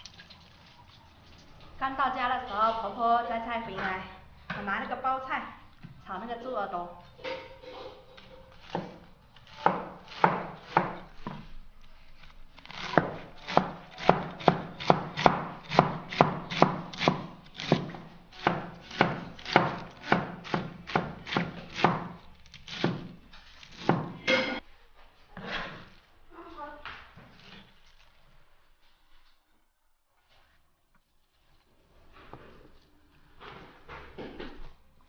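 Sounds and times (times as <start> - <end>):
cleaver chopping cabbage on board: 8.6 - 11.5, 12.7 - 24.4.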